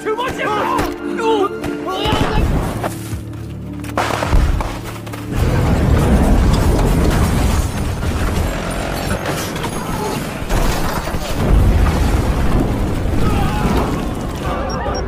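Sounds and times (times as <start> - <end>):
explosions booming and rumbling: 5.3 - 8.6, 10.5 - 14.5.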